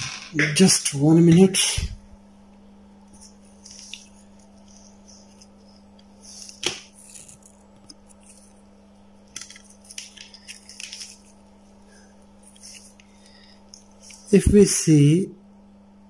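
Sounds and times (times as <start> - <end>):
steady hum: 0.0 - 16.0
clicks and rustles of handling: 9.2 - 11.4.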